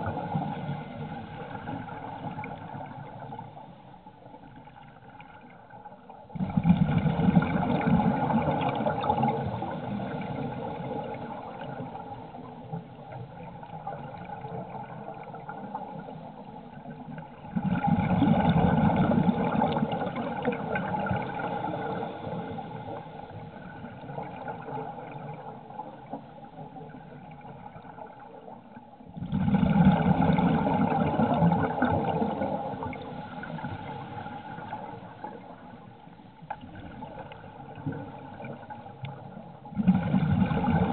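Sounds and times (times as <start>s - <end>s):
underwater exhalation bubbles: 6.3s - 11.9s, 17.4s - 22.4s, 29.2s - 33.6s, 39.7s - 40.9s.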